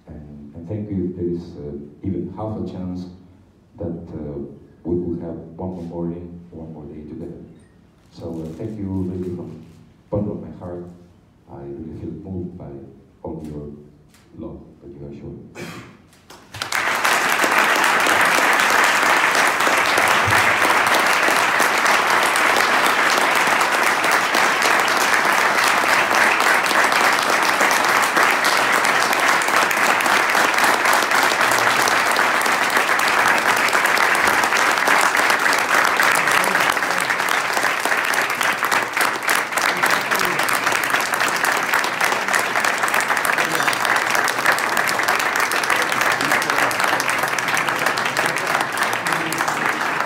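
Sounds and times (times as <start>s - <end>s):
audience applauding: 16.3s - 50.0s.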